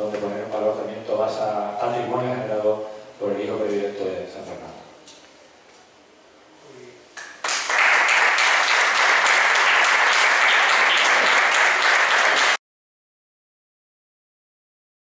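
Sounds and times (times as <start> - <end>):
audience applauding: 7.2 - 12.6.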